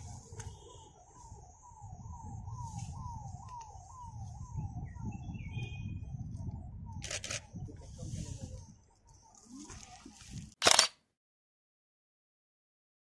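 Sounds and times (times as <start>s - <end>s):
bird chirping: 0.0s - 7.7s.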